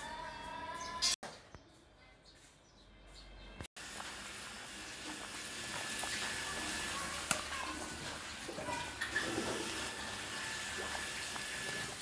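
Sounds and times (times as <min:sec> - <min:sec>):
soup bubbling at a boil: 0:03.8 - 0:12.0.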